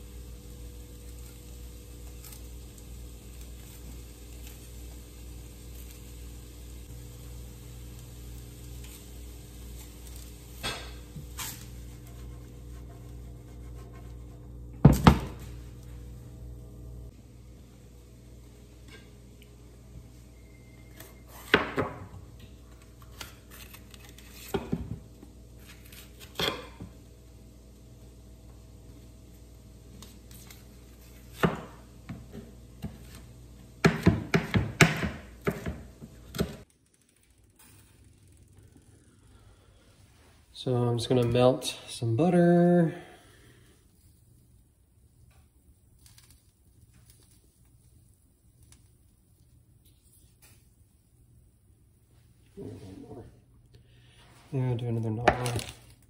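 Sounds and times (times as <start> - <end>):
vegetables sizzling in a skillet: 0.0 - 12.1
knife chopping on plastic board: 33.8 - 36.6.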